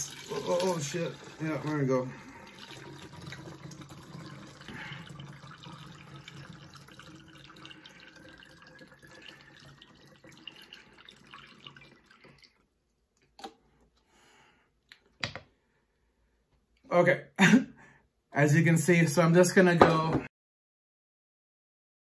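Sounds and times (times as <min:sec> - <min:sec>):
water pouring through a funnel: 0:00.0 - 0:12.8.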